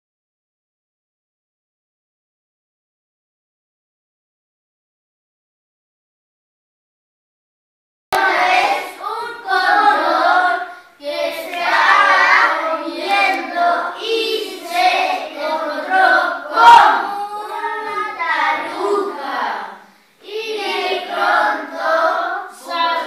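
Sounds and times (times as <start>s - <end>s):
children singing in unison: 8.2s - 23.0s.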